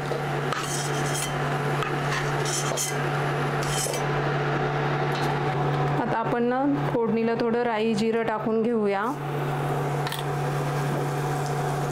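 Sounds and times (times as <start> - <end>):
steady low hum: 0.0 - 11.9
metal spoon scraping a pan: 0.5 - 3.0, 3.6 - 4.1
oil sizzling: 9.2 - 11.9.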